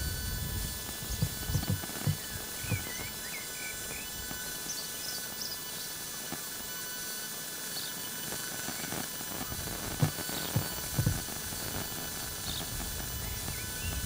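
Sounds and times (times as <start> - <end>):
bird chirps: 1.6 - 6.0, 12.2 - 14.0.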